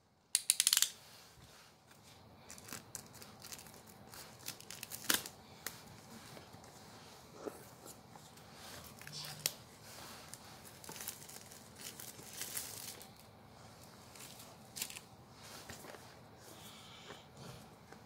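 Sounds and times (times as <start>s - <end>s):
plastic wrap crinkling: 2.4s - 6.0s, 8.8s - 13.3s, 14.0s - 16.0s.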